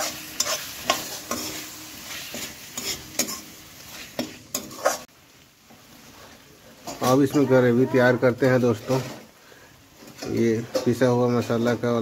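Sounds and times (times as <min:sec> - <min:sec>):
metal spatula scraping pan: 0:00.0 - 0:05.1
food sizzling in oil: 0:00.0 - 0:12.0.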